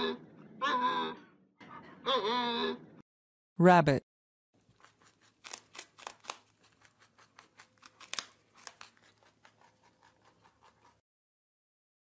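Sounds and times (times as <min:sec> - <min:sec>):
rabbit scratching in sand: 0:04.7 - 0:11.0.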